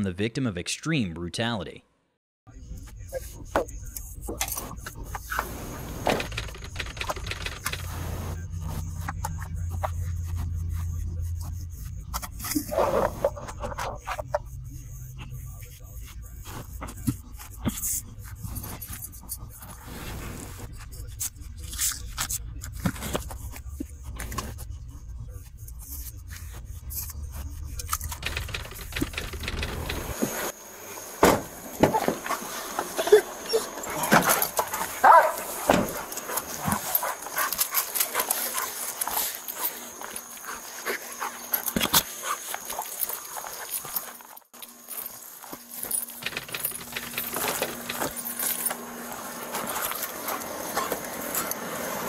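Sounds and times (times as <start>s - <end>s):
clatter and rustle of gear: 27.8s - 30.4s, 33.8s - 51.7s
dog barking and whining: 33.0s - 43.6s.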